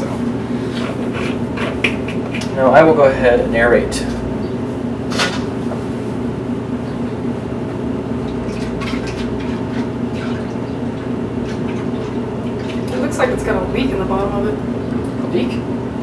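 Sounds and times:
steady background hum: 0:00.0 - 0:16.0
liquid sloshing in glass jug: 0:08.3 - 0:13.0.

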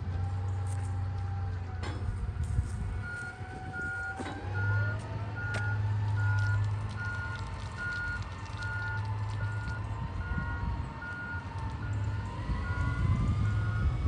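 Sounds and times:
diesel engine running: 0:00.0 - 0:14.0
reversing alarm beeps: 0:03.0 - 0:14.0.

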